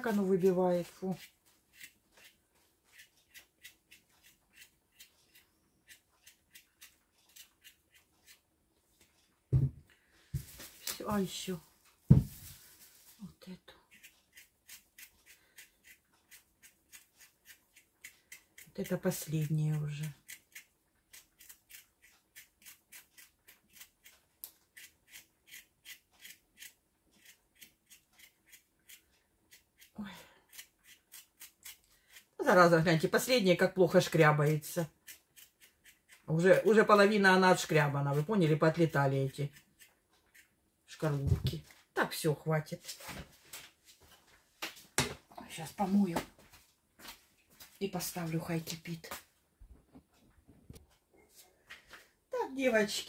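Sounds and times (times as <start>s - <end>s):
knife scraping potato skin: 0.0s - 8.5s, 13.9s - 37.1s, 37.8s - 40.6s.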